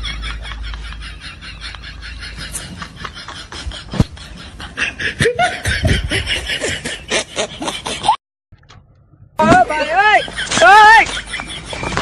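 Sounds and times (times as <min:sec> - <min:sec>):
stifled snickering laughter: 0:00.0 - 0:08.2, 0:10.2 - 0:12.0.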